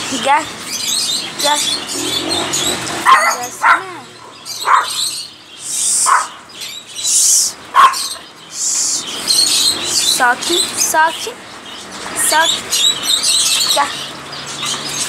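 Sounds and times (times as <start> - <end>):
small dog barking: 3.0 - 5.1, 6.0 - 6.4, 7.7 - 8.2.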